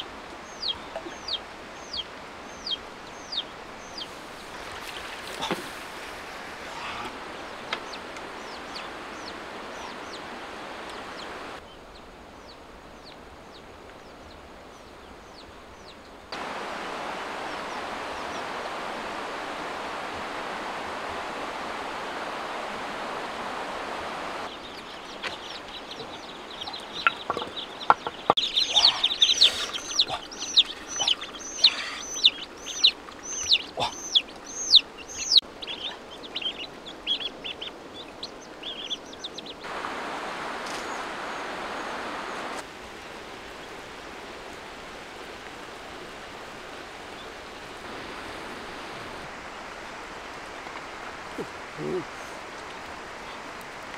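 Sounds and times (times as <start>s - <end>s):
chicks and ducklings peeping: 0.0s - 4.7s, 6.8s - 10.3s, 24.5s - 39.6s
river rushing: 0.0s - 53.9s.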